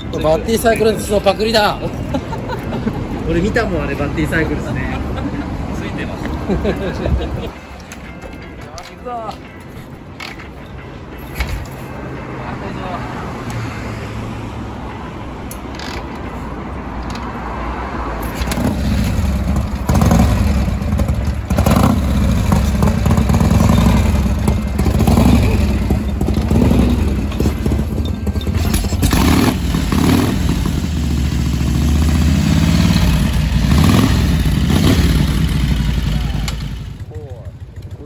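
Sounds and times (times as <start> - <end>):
motorcycle engine running: 18.4 - 38.0.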